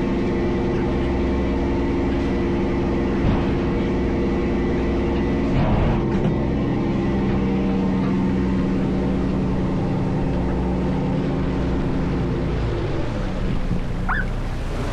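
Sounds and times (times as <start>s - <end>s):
boat engine running: 0.0s - 14.9s
water rushing along hull: 6.4s - 14.9s.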